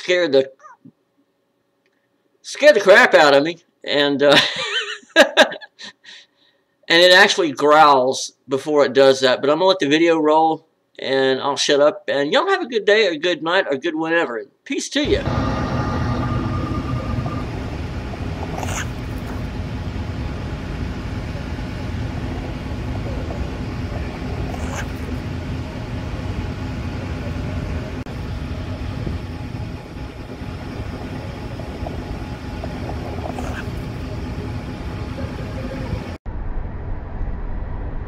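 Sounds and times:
low outdoor rumble: 0:15.0 - 0:38.0.

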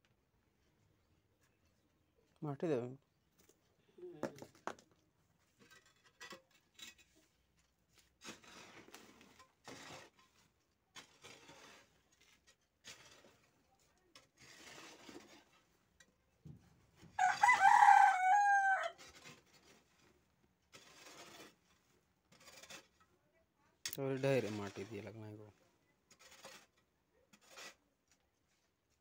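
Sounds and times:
hoe scraping soil: 0:05.5 - 0:16.1, 0:17.0 - 0:23.1, 0:24.0 - 0:27.9
rooster crowing: 0:17.2 - 0:19.0.

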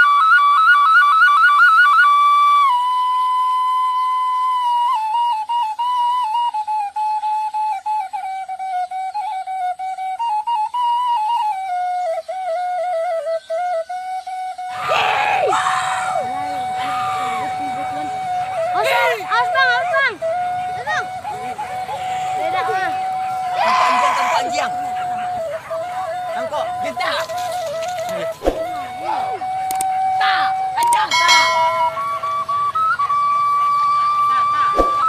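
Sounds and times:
flute-like melody: 0:00.0 - 0:35.0
crowd shouting and yelling: 0:14.7 - 0:32.6.

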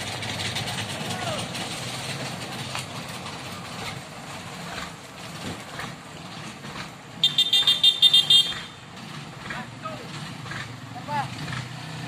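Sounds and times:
diesel truck engine running: 0:00.0 - 0:12.0
vehicle horn short high beeps: 0:07.2 - 0:08.8.

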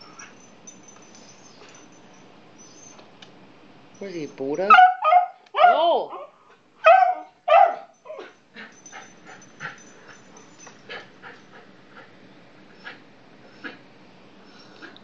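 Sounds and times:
dog whining: 0:01.2 - 0:02.0, 0:02.6 - 0:03.1, 0:04.7 - 0:09.9, 0:14.4 - 0:15.0
dog barking: 0:04.7 - 0:05.9, 0:06.8 - 0:07.9
dog whimpering: 0:07.0 - 0:09.1, 0:14.5 - 0:15.0.

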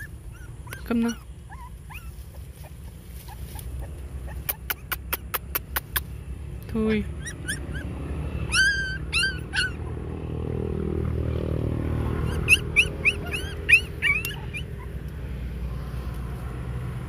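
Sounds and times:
puppies whimpering and yelping: 0:00.0 - 0:06.0, 0:07.1 - 0:10.2, 0:12.1 - 0:15.4.

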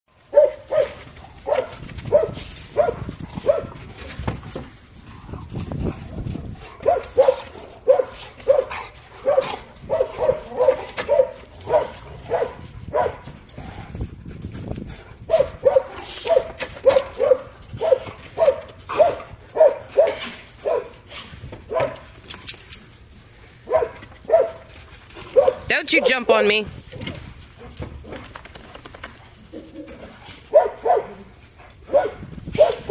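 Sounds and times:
dog barking: 0:00.3 - 0:03.8, 0:06.8 - 0:13.2, 0:15.3 - 0:21.0, 0:21.7 - 0:22.0, 0:23.7 - 0:24.6, 0:25.4 - 0:26.2, 0:30.5 - 0:31.3, 0:31.9 - 0:32.9.

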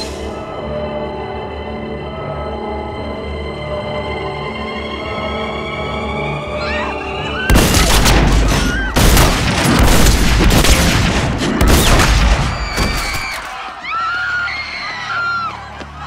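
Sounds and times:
people screaming: 0:06.5 - 0:09.0, 0:11.5 - 0:16.0
booming gunshots: 0:07.5 - 0:13.2.

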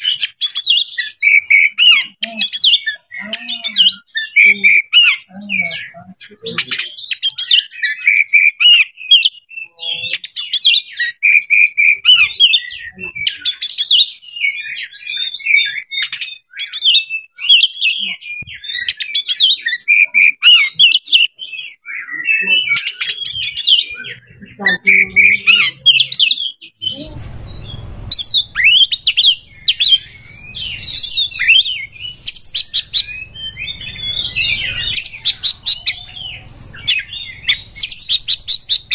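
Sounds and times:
bird singing whistles and trills: 0:00.0 - 0:38.9
low steady rumble: 0:26.9 - 0:38.9.

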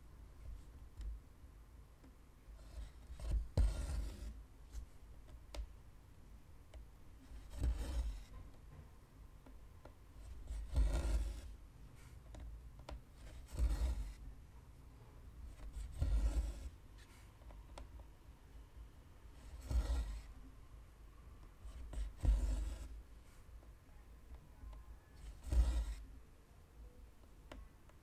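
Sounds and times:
thread rasping through fabric: 0:19.4 - 0:20.3, 0:25.2 - 0:26.0.

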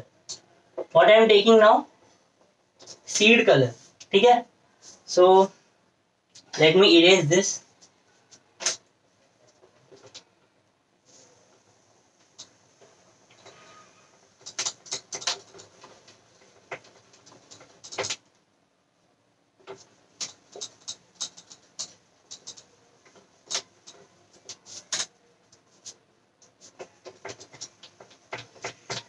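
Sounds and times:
whiteboard rubbing and squeaking: 0:12.4 - 0:18.2, 0:19.6 - 0:29.0.

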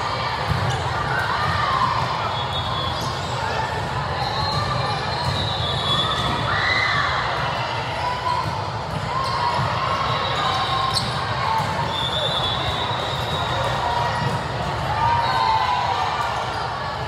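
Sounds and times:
balls being hit and bounced: 0:00.0 - 0:15.1
hum of voices in a hall: 0:00.0 - 0:17.0.

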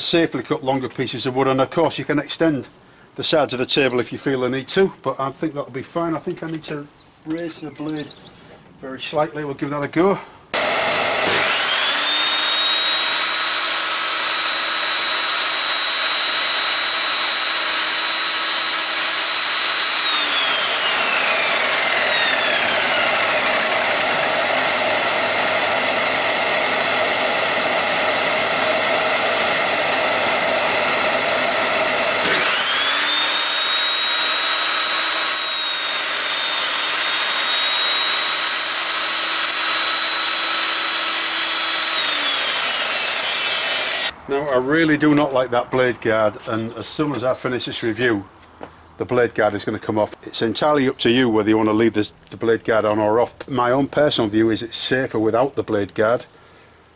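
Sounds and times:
dust extractor noise: 0:10.6 - 0:44.2
table saw motor whining: 0:10.6 - 0:44.2.

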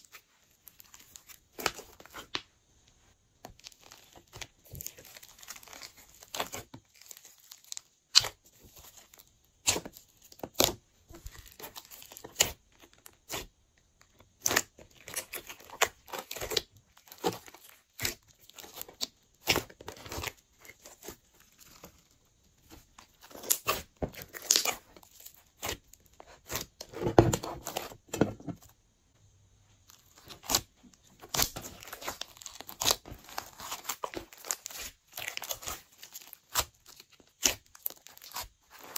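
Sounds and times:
hands squishing slime: 0:00.0 - 0:02.5, 0:03.5 - 0:13.5, 0:14.3 - 0:28.0, 0:29.8 - 0:38.9.

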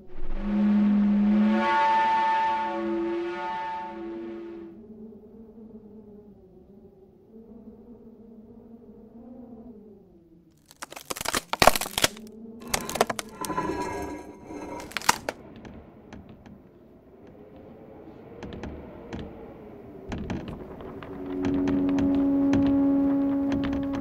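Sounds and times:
sharp cracks and crackling: 0:10.6 - 0:15.4.

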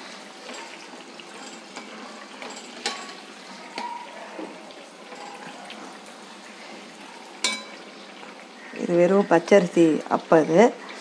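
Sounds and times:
batter sizzling in hot oil: 0:00.0 - 0:11.0.

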